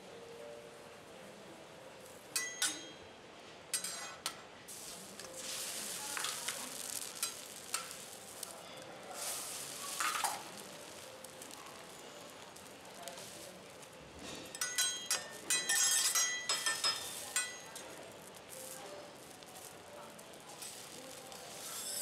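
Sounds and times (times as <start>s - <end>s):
metal spatulas scraping a griddle: 3.7s - 11.0s, 13.1s - 17.9s, 20.6s - 22.0s
eggs sizzling on a griddle: 3.7s - 22.0s.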